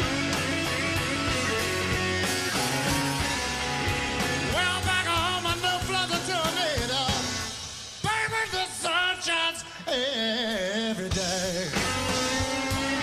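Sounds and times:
blues band with electric guitar: 0.0 - 13.0
man singing: 4.3 - 13.0.

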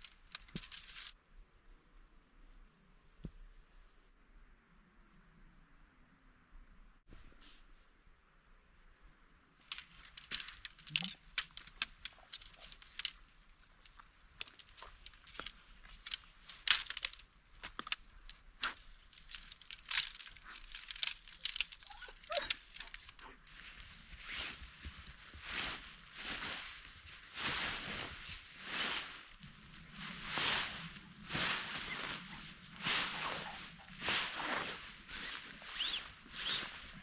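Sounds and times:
footsteps crunching in snow: 22.6 - 37.0.

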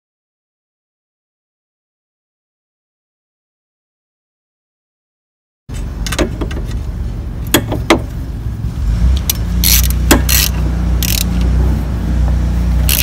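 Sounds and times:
steady low hum: 5.7 - 13.0
ratchet clicking: 9.2 - 11.5.

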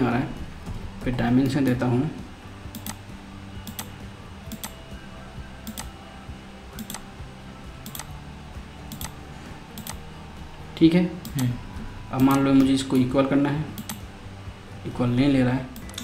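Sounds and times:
low steady hum: 0.0 - 16.0
computer mouse clicking: 2.7 - 3.0, 3.6 - 3.9, 4.5 - 4.8, 5.6 - 6.0, 6.8 - 7.1, 7.8 - 8.2, 8.9 - 9.2, 9.8 - 10.0, 11.2 - 11.6, 12.2 - 13.1, 13.8 - 14.1, 15.8 - 16.0.

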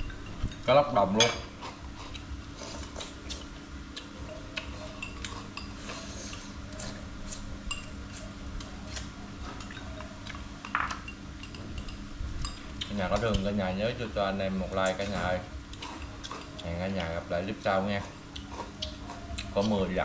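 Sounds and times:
utensils clinking against plates: 0.0 - 3.4, 4.7 - 8.3, 8.9 - 13.7.

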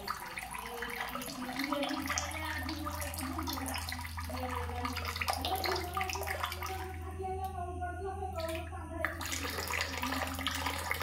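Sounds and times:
water running and splashing: 0.0 - 7.0, 8.4 - 11.0
low steady hum: 0.0 - 11.0.

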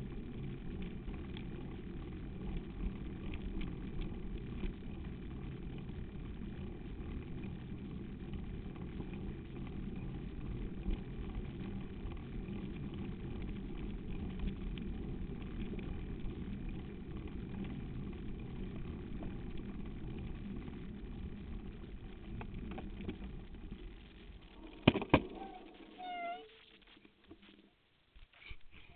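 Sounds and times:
wind and bike riding rumble: 0.0 - 28.9
high squeaky call: 25.3 - 26.6.

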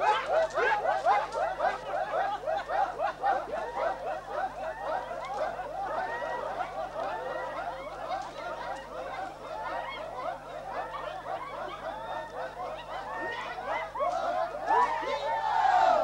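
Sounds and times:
men chanting and yelping: 0.0 - 16.0.

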